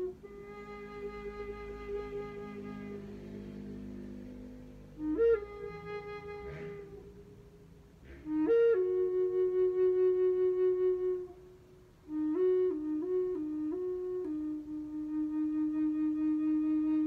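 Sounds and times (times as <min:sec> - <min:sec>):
wooden flute melody: 0:00.0 - 0:17.0
quick breath: 0:08.0 - 0:08.4.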